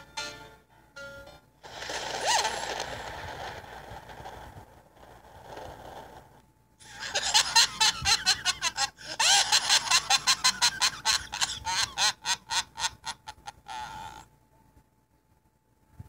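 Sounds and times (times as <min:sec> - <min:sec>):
person laughing loudly: 0:02.2 - 0:02.9, 0:06.8 - 0:14.2.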